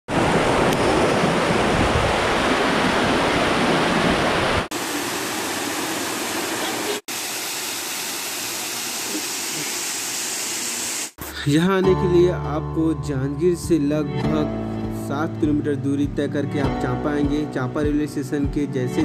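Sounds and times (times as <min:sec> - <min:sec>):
waterfall rushing: 0:00.1 - 0:11.0.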